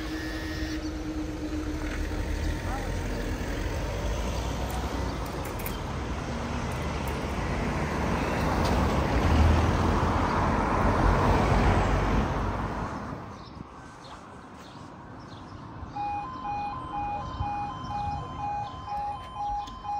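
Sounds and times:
cars driving past: 0.0s - 19.9s.

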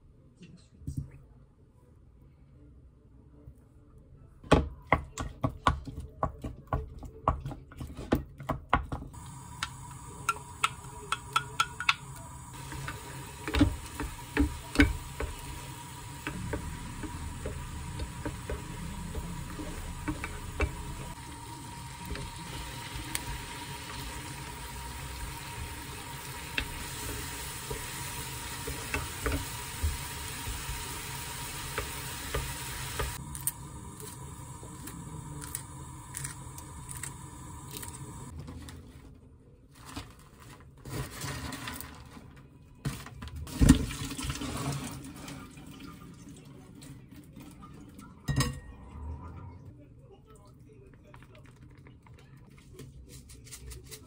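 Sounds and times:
food sizzling in a frying pan: 9.1s - 38.4s.

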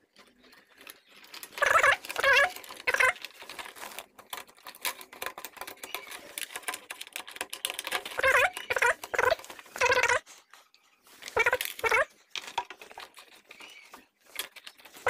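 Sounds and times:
plastic parts clicking and rattling: 0.0s - 15.0s
high wavering voice-like calls: 8.2s - 10.4s.

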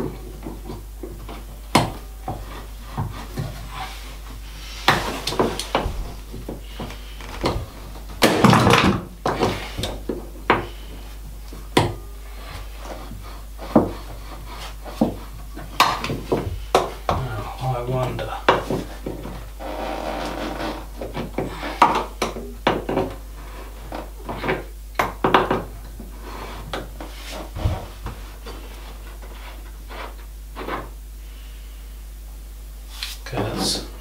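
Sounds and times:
metal scraping: 19.6s - 20.9s.

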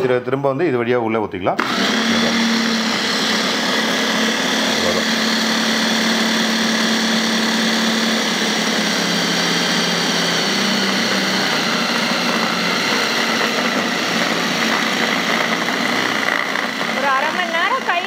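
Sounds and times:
mixer grinder motor running: 1.6s - 18.0s.

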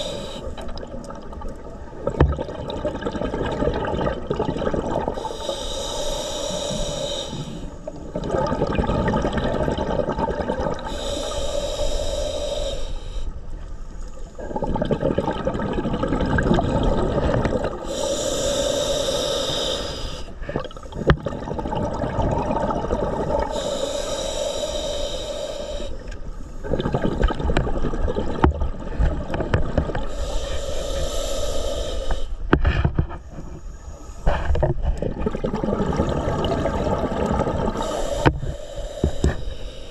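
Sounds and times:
hissing regulator inhale: 0.0s - 0.6s, 5.1s - 8.0s, 10.8s - 14.4s, 17.8s - 20.7s, 23.3s - 27.3s, 29.9s - 34.7s, 36.0s - 39.9s
burble of exhaled bubbles: 0.6s - 5.3s, 7.9s - 10.9s, 14.4s - 18.0s, 20.4s - 23.6s, 26.6s - 30.1s, 34.3s - 39.3s.

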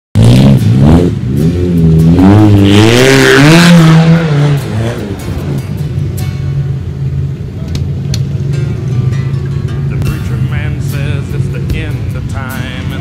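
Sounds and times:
engine revving hard: 0.2s - 5.6s.

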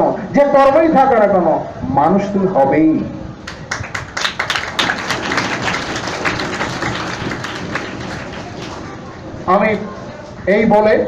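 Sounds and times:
audience applauding: 3.5s - 9.1s.

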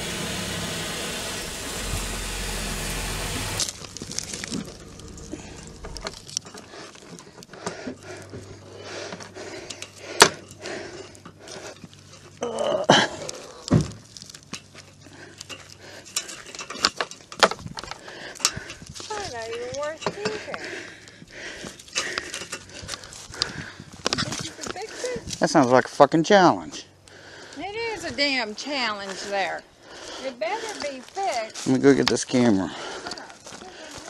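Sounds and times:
vehicle engine: 0.0s - 12.4s
cable handling clicks and rattles: 3.6s - 8.0s, 13.2s - 20.3s.

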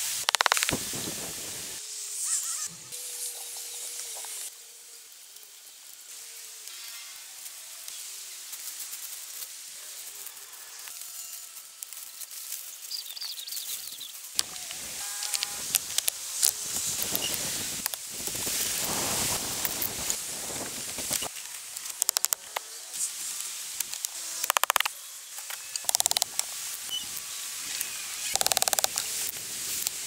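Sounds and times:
steady high hiss: 0.0s - 9.7s, 14.1s - 30.0s
branches rustling and snapping: 14.4s - 22.6s.

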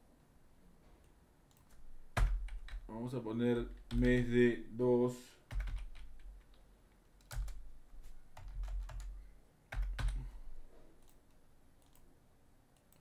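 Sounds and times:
typing on a computer keyboard: 1.5s - 2.9s, 3.7s - 4.3s, 5.5s - 6.6s, 7.2s - 7.6s, 8.3s - 10.2s, 11.8s - 12.0s.

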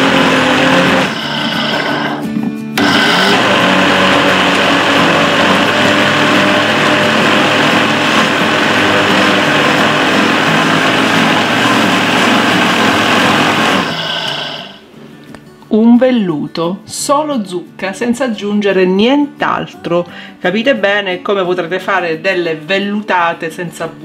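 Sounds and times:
blender running at full speed: 0.0s - 14.9s.

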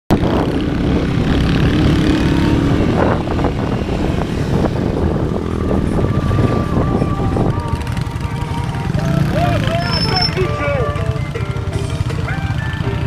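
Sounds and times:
wind rumble on microphone: 0.1s - 9.2s
motorcycle engine running: 0.1s - 13.0s.

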